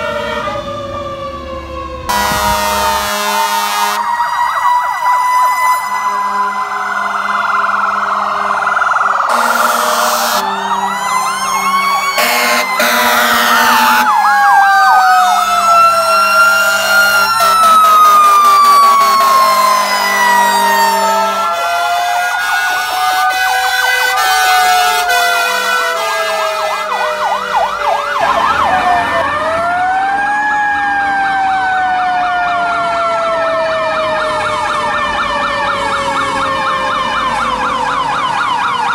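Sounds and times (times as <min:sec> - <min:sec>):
fast electronic siren wails: 0:00.0 - 0:38.9
slow rise-and-fall siren: 0:00.0 - 0:38.9
air horn blasts: 0:02.1 - 0:04.1, 0:06.1 - 0:08.6, 0:09.3 - 0:10.8, 0:12.2 - 0:14.2, 0:17.2 - 0:27.4.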